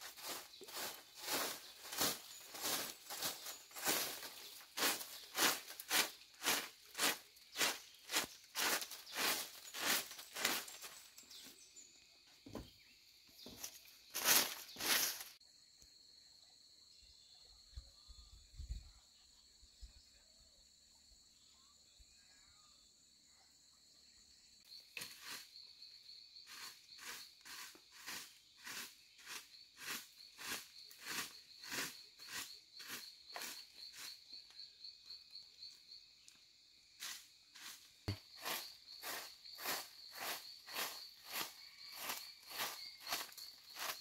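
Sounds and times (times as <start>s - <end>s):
broom sweeping leaves: 0.0s - 11.3s, 13.5s - 15.4s, 25.0s - 25.8s, 26.4s - 34.3s, 37.0s - 44.0s
insect trill: 0.0s - 44.0s.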